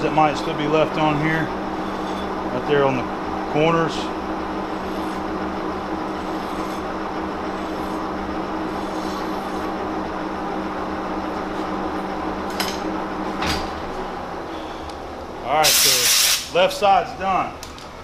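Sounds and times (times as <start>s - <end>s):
lathe running with geared hum: 0.0s - 15.6s
hand file on spinning rod: 1.8s - 2.4s, 4.7s - 9.8s.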